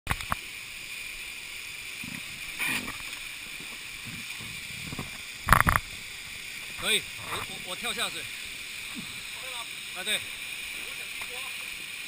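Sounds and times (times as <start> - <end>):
waterfall rushing: 2.0 - 12.0.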